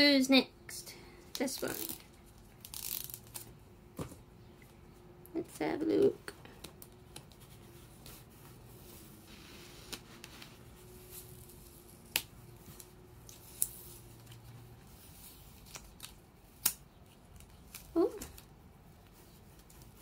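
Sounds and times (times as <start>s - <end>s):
tape being peeled off: 1.5s - 3.5s, 9.2s - 18.5s.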